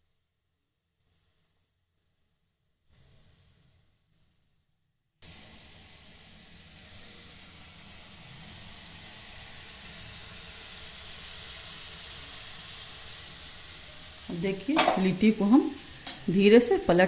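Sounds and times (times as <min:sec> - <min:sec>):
food sizzling in hot oil: 0:05.2 - 0:17.0.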